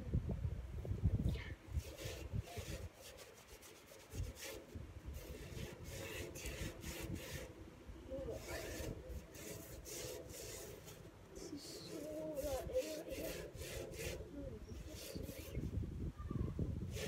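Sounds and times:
brush scrubbing wheelbarrow tray: 1.8 - 7.6, 8.2 - 15.7.

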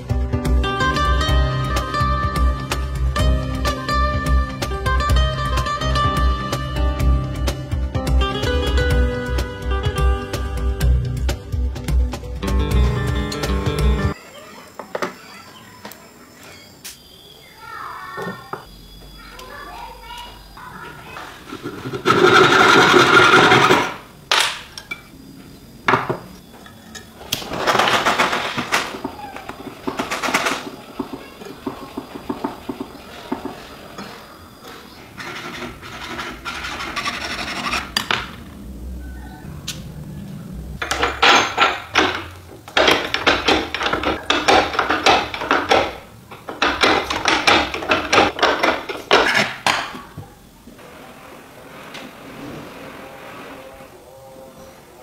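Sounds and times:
file rasping on metal: 35.2 - 38.1.

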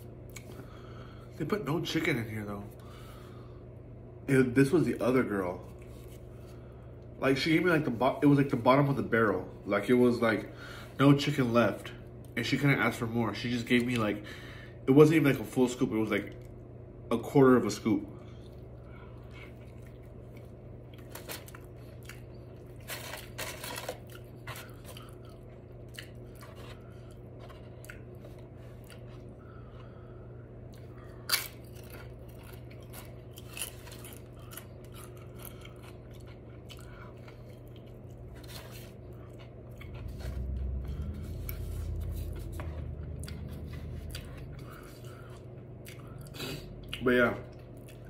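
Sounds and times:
chewing and biting food: 18.3 - 30.0, 30.6 - 48.0
low rumble: 39.7 - 45.2.

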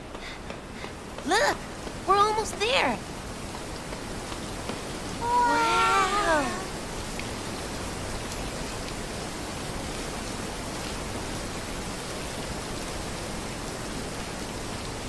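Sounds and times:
waterfall rushing: 4.9 - 8.2.

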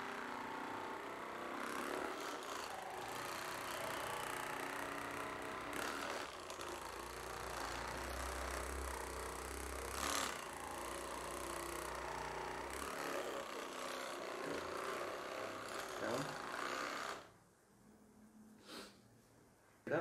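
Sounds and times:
massage gun motor humming: 0.0 - 17.4.

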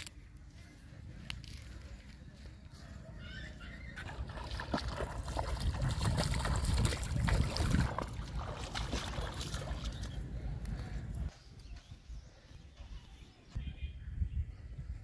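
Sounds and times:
feet splashing in shallow water: 2.9 - 11.3.

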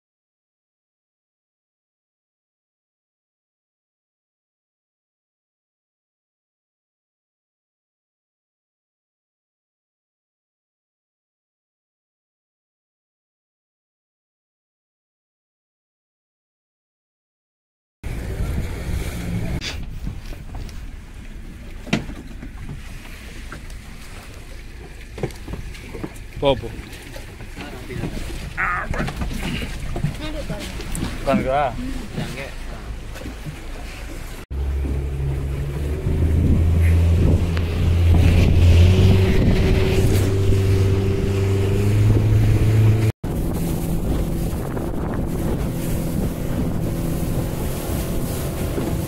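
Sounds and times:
boat motor rumbling: 18.0 - 49.0
water noise: 18.0 - 49.0
wind noise on microphone: 18.1 - 20.9, 34.6 - 49.0.

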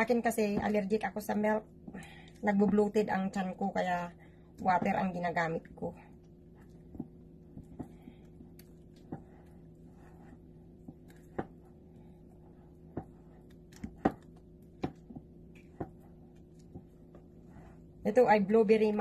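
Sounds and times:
low hum: 0.0 - 19.0
spatula stirring batter in bowl: 4.5 - 19.0.

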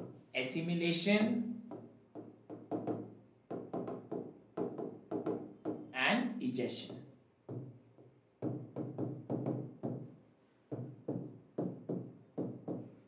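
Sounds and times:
marker knocking on writing board: 0.0 - 0.3, 1.4 - 6.0, 6.9 - 13.0.

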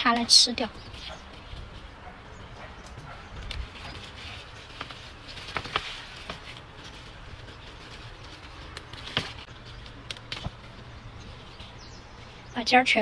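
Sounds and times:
leaves rustling: 0.0 - 13.0
plant stems snapping: 8.4 - 10.7.

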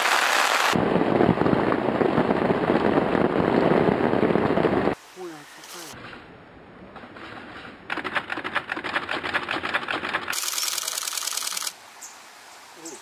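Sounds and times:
camera shutter burst: 10.3 - 11.8.

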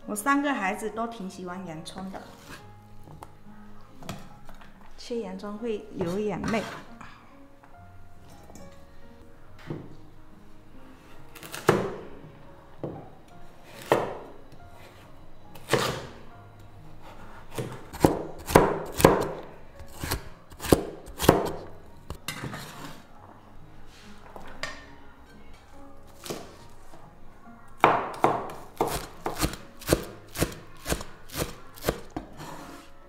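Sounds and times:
cleaver chopping on wooden board: 17.6 - 19.4, 20.0 - 21.6, 27.8 - 32.2.

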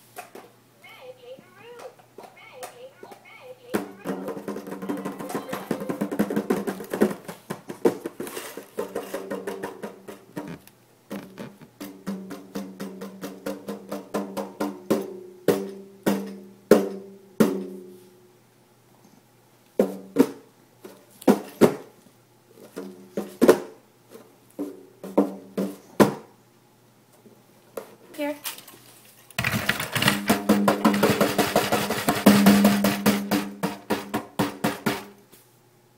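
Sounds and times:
hand drum slapped: 30.0 - 35.1.

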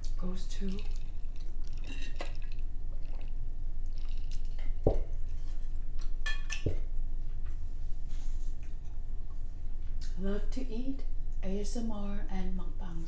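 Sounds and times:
wet chewing mouth sounds: 0.0 - 6.2.

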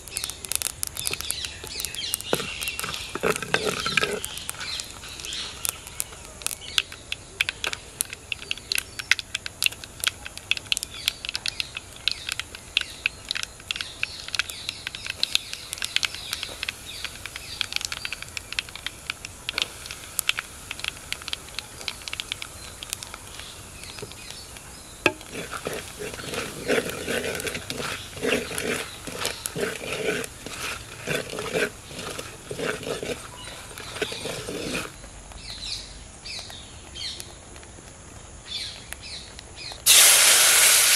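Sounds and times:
chillies crackling in hot oil: 0.0 - 40.9
spoon scraping a clay pot: 1.0 - 6.6, 15.1 - 35.0.

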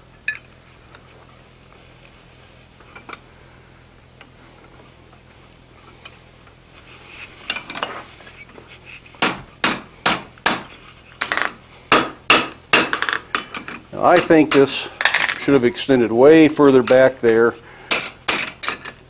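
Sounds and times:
hammer striking steel on anvil: 11.3 - 13.2.

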